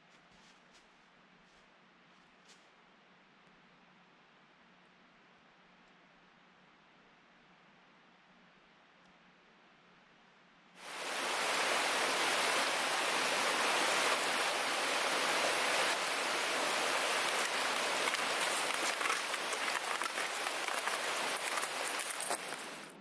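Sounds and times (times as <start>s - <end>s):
rushing water hiss: 10.8s - 23.0s.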